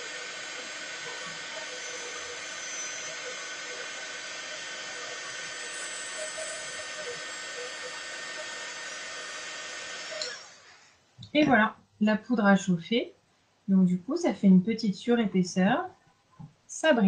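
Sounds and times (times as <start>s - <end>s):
heat gun blowing hiss: 0.0s - 10.9s
faint steady whine: 0.0s - 17.0s.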